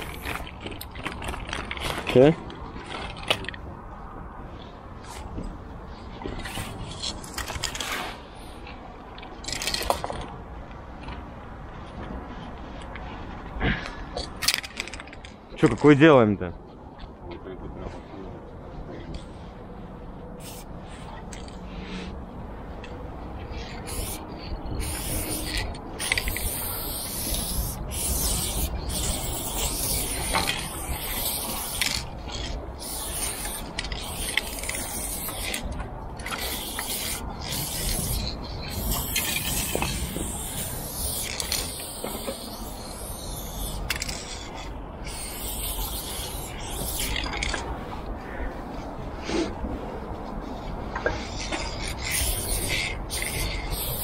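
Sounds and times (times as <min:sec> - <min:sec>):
spray paint can hissing: 0:00.0 - 0:00.4, 0:20.4 - 0:20.7, 0:23.5 - 0:47.6, 0:51.2 - 0:54.0
steady low rumble: 0:16.4 - 0:54.0.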